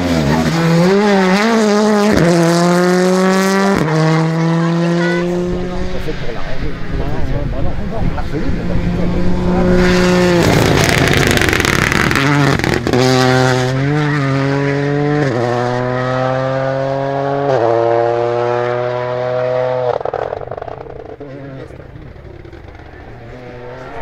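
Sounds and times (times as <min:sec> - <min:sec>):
rally car engine at full throttle: 0:00.0 - 0:24.0
sharp exhaust cracks: 0:10.4 - 0:12.9.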